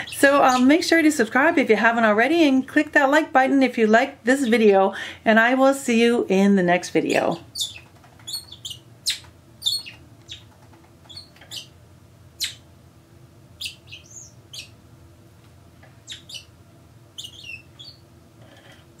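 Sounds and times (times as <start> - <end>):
parakeets chirping: 0.0 - 0.8, 7.2 - 11.8, 12.4 - 12.7, 13.6 - 14.8, 16.0 - 16.5, 17.1 - 18.0.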